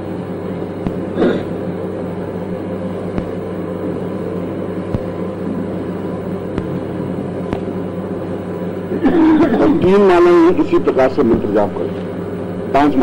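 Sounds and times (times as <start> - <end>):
low electrical hum with hiss: 0.0 - 13.0.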